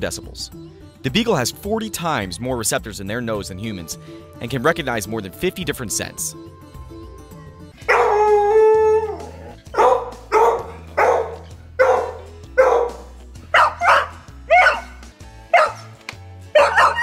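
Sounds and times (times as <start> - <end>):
dog barking: 7.8 - 8.3, 9.7 - 17.0
dog howling: 7.8 - 13.0, 13.6 - 15.9, 16.6 - 17.0.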